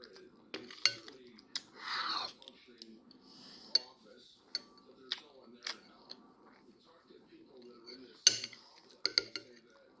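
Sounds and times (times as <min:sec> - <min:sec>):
spoon clacking on bowl: 0:08.2 - 0:09.6.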